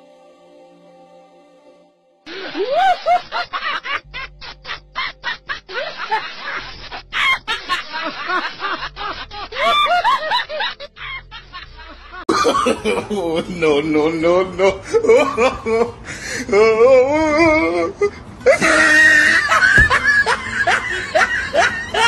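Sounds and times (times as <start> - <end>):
people laughing and exclaiming: 2.3 - 22.0
faint low beat: 3.6 - 9.4.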